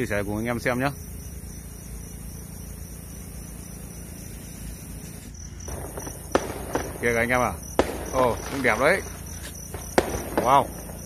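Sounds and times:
cricket chirping: 0.0 - 11.0
steady low rumble: 5.7 - 11.0
distant firework pop: 7.7 - 11.0.

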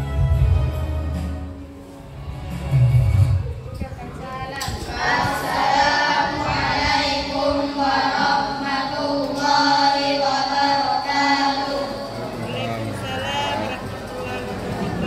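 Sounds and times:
children singing in unison: 4.5 - 13.6.

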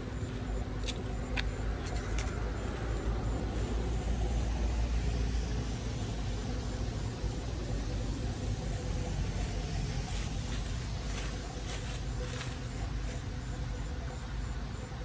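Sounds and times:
vehicle passing on wet road: 2.4 - 10.4.

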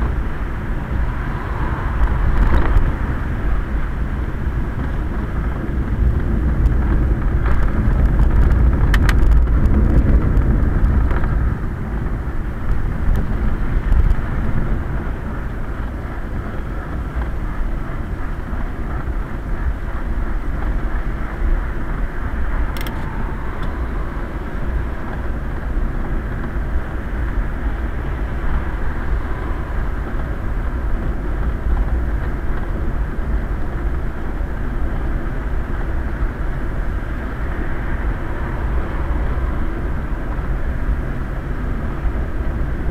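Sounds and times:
tyre road and wind rumble: 0.0 - 42.9
sharp click: 22.8 - 23.1.

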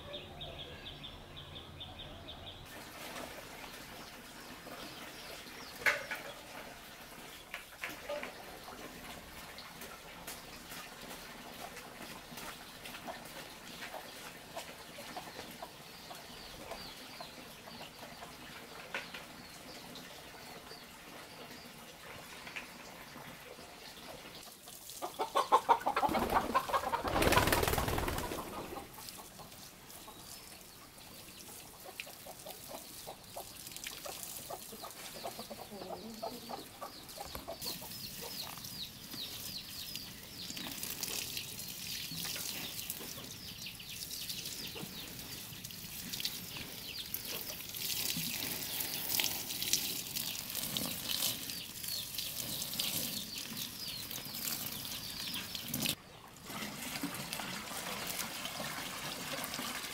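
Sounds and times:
watering can sprinkling onto soil: 2.7 - 14.0, 38.4 - 43.4, 44.0 - 59.9
chicken calling: 25.0 - 29.2.

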